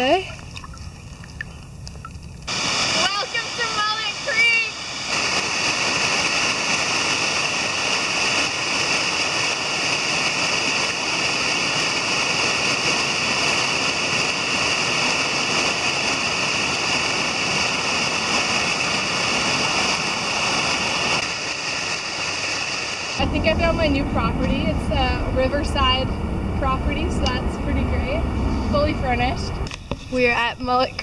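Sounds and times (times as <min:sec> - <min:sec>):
waterfall splashing over rocks: 0:02.5 - 0:24.6.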